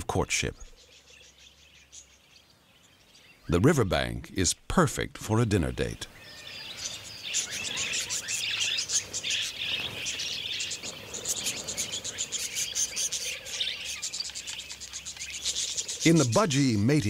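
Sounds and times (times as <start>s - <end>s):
budgerigars chattering: 5.4s - 17.0s.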